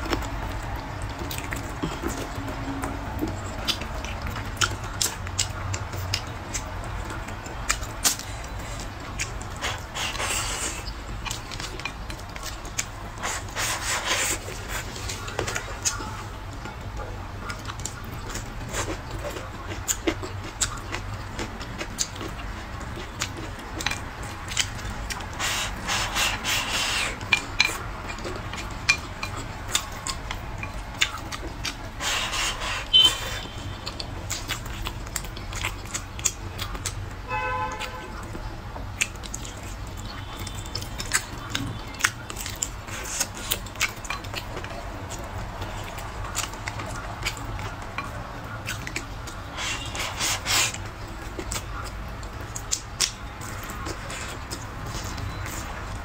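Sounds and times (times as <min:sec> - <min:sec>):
chewing and mouth smacks: 0:00.0 - 0:37.1, 0:37.7 - 0:56.0
slurping: 0:07.7 - 0:16.2, 0:20.6 - 0:35.0, 0:48.7 - 0:51.6.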